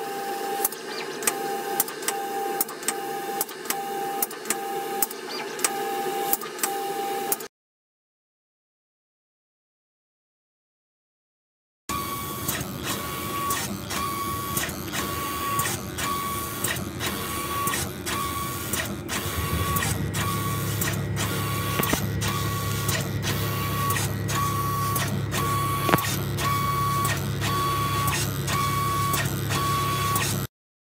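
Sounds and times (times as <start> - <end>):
machine beeping: 11.9 - 30.5
low hum: 18.9 - 28.0
click: 21.8 - 22.1, 25.8 - 26.1.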